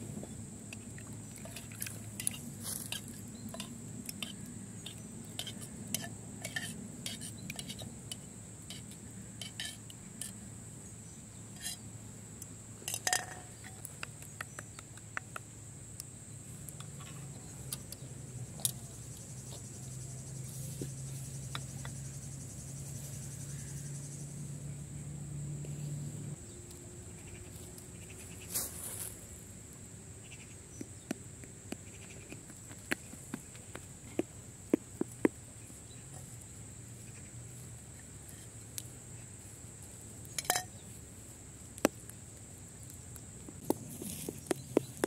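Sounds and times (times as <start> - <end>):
metal spoon clinking on clay bowls: 1.4 - 10.4, 12.8 - 13.9, 40.3 - 40.8
high-pitched insect drone: 18.6 - 26.2.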